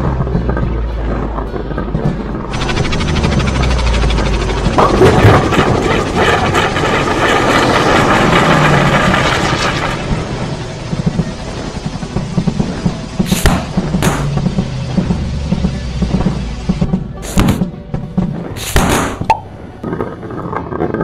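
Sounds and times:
dense rushing blast noise: 0.0 - 20.3
low pulsing: 0.0 - 20.5
sharp gunshot-like cracks: 13.3 - 14.4, 17.2 - 17.7, 18.6 - 19.4.

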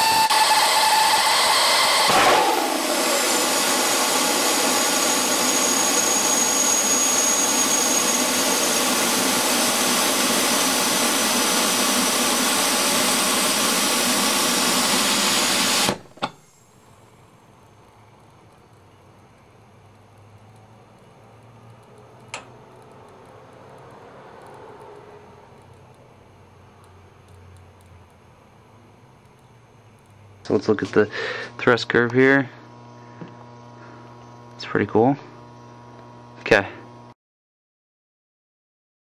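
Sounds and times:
rocket motor rushing hiss: 0.0 - 17.2.

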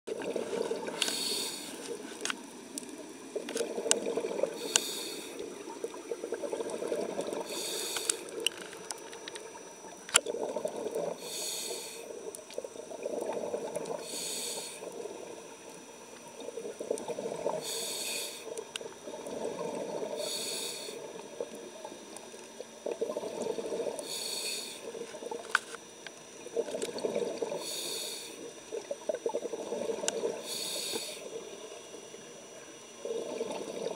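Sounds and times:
exhaled bubbles burbling: 0.1 - 1.7, 2.6 - 25.6, 26.3 - 32.0, 33.0 - 33.9
regulator hiss on inhale: 0.8 - 2.7, 4.5 - 5.6, 7.4 - 8.4, 11.0 - 12.3, 13.2 - 16.8, 17.4 - 21.4, 23.4 - 25.8, 27.4 - 28.7, 29.7 - 33.4.

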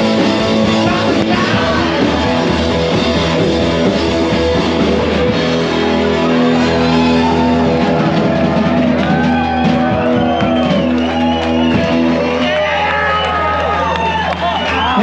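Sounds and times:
electric guitar chords: 0.0 - 13.8
person singing: 0.5 - 2.9.

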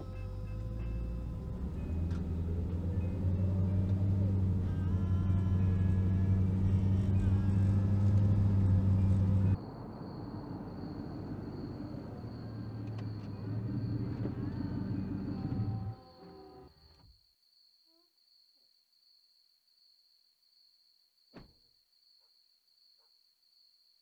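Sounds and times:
car cabin engine and road noise: 0.0 - 16.8.

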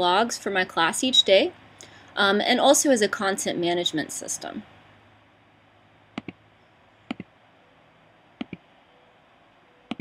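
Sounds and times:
computer mouse clicks: 6.2 - 6.4, 7.1 - 7.3, 8.4 - 8.6.

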